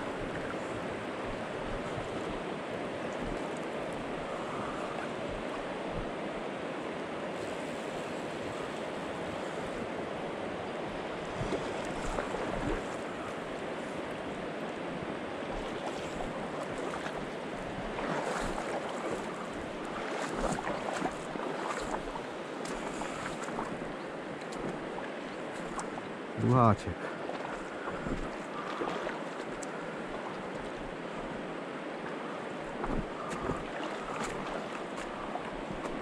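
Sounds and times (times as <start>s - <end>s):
river rushing over stones: 0.0s - 36.0s.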